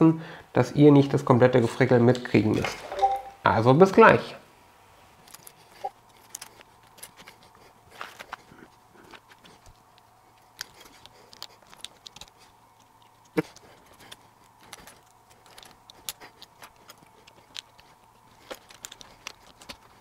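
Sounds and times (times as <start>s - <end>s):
plastic clicks and rattling: 9.3s - 20.0s.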